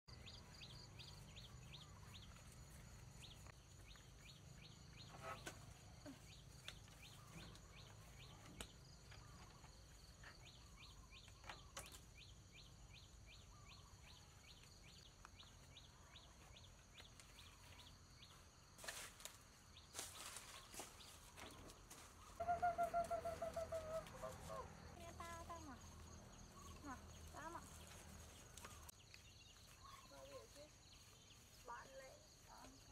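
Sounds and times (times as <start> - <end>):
rustle: 16.8 - 25.3, 25.9 - 32.9
short repeated calls: 22.4 - 24.7.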